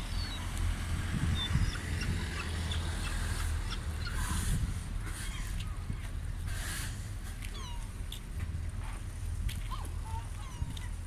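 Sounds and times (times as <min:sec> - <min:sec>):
gulls calling: 0:01.3 - 0:06.1, 0:07.4 - 0:08.0.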